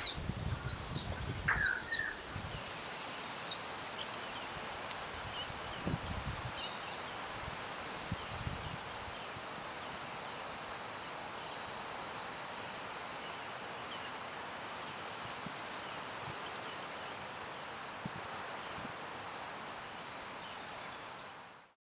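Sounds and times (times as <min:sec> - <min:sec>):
steady hiss: 0:00.0 - 0:21.8.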